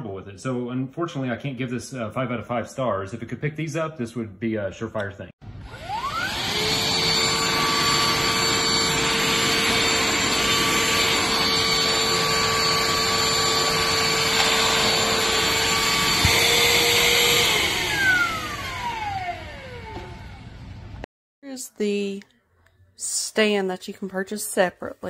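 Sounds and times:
handheld vacuum running: 5.4s - 21.0s.

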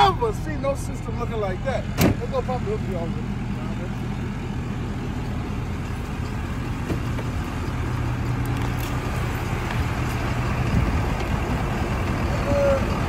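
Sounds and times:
pickup truck engine idling: 0.0s - 13.0s.

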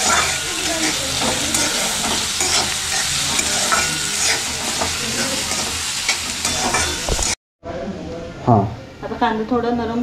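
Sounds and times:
onions sizzling in oil: 0.0s - 7.4s
spoon scraping pan: 0.0s - 7.4s.

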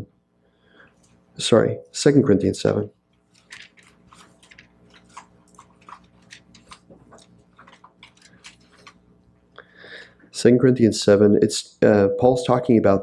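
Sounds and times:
faint steady hum: 0.0s - 13.0s
paper pages rustling: 3.1s - 9.1s.

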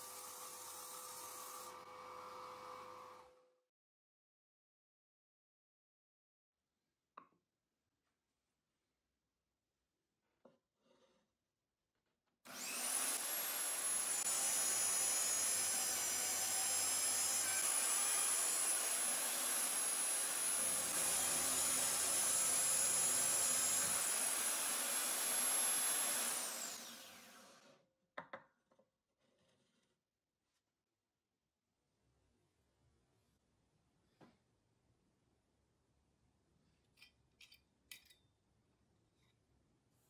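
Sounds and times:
electric drill whining: 12.5s - 27.8s.

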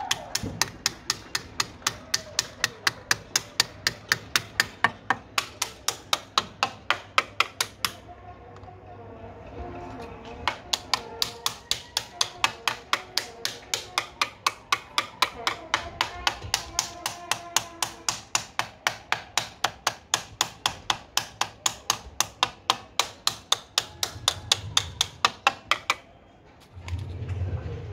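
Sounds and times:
faint voices: 7.8s - 18.1s.

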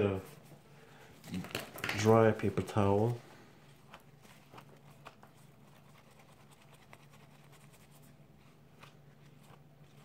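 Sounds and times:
low steady hum: 0.0s - 10.0s
paper towel rubbing watch: 2.8s - 10.0s.

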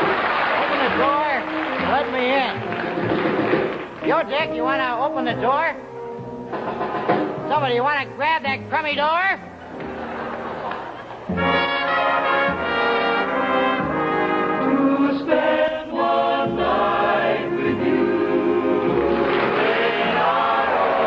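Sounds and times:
brass-led orchestra: 11.3s - 16.0s
mixed choir singing: 13.3s - 21.0s.

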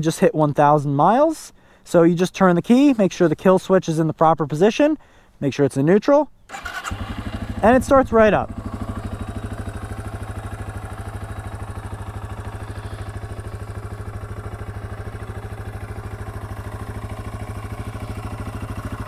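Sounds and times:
motorcycle engine idling: 6.5s - 19.0s.

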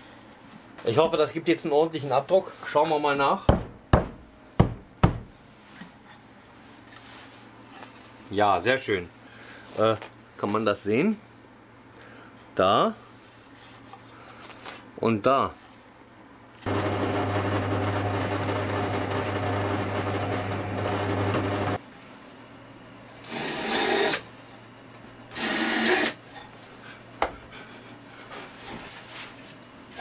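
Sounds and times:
cordless drill drilling wood: 23.2s - 24.2s, 25.3s - 26.2s.

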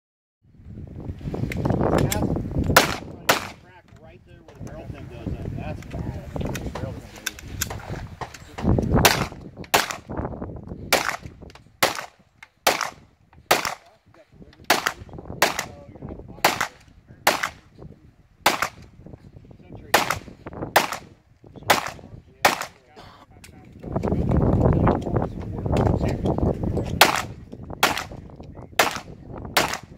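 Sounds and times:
pistol shots: 2.7s - 3.6s, 9.0s - 10.1s, 10.9s - 13.9s, 14.7s - 15.8s, 16.4s - 17.6s, 18.4s - 18.8s, 19.9s - 22.8s, 27.0s - 28.2s, 28.8s - 29.9s.

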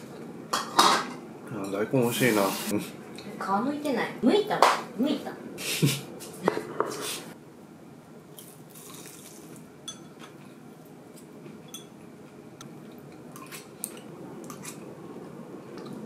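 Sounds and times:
ceramic tableware clinking: 11.7s - 12.0s.

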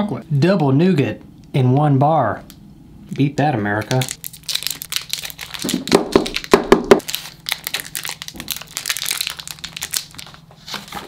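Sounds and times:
snack wrapper crinkling and tearing: 3.8s - 10.5s.

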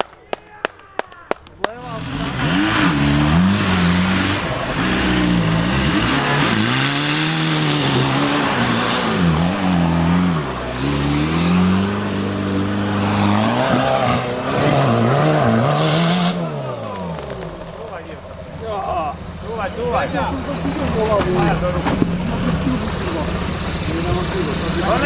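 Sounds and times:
engine revving hard: 1.8s - 18.1s.

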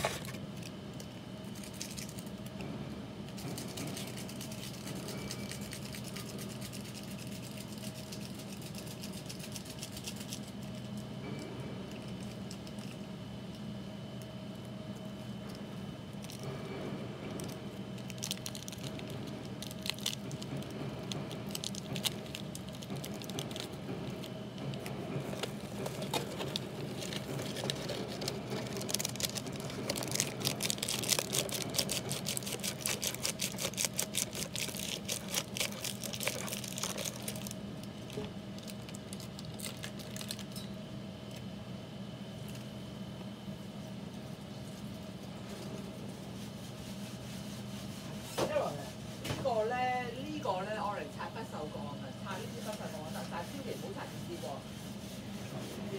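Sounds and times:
steady low hum: 0.0s - 55.9s
plastic sachets crinkling and tearing: 17.4s - 40.6s
dry bits pattering: 18.0s - 24.3s, 25.9s - 40.6s.

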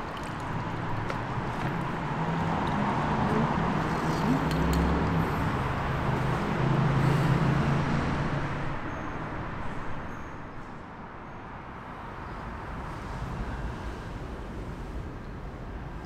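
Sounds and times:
vehicle engine hum: 0.0s - 8.9s
street traffic noise: 0.0s - 16.0s.

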